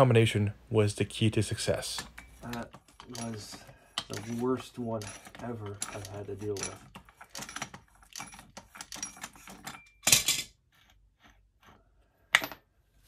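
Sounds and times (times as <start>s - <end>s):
small metallic clicks and clinks: 2.1s - 10.5s.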